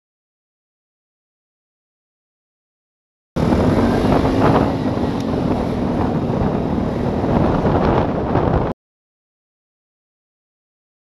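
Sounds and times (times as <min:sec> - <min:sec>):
scooter engine humming: 0:03.4 - 0:08.7
wind buffeting microphone: 0:03.4 - 0:08.8.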